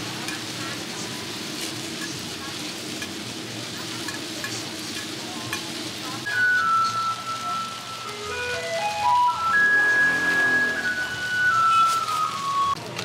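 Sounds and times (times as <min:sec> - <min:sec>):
buns sizzling in oil: 0:00.0 - 0:13.0
music with held high note: 0:06.3 - 0:12.8.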